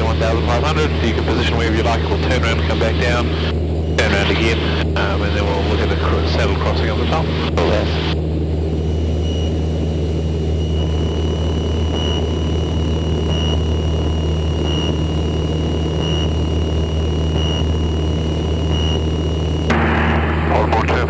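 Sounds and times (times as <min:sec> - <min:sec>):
faint pulsing high whine: 0:00.0 - 0:21.0
propeller aircraft engine droning: 0:00.0 - 0:21.0.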